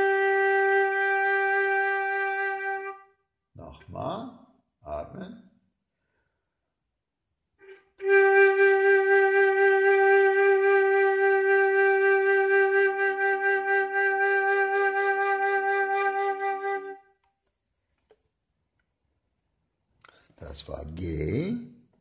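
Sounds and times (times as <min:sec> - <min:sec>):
flute holding long note: 0:00.0 - 0:03.1, 0:07.6 - 0:17.0.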